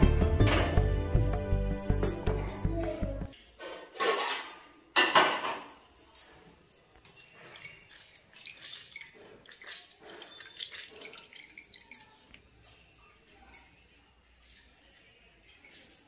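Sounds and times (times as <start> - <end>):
juice dripping through a strainer: 6.9 - 16.0.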